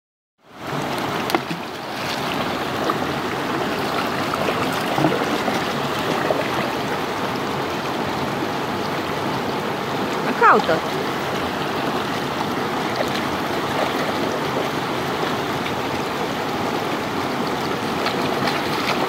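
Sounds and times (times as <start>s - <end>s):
river rushing over stones: 0.5s - 19.0s
dog splashing in water: 18.0s - 19.0s.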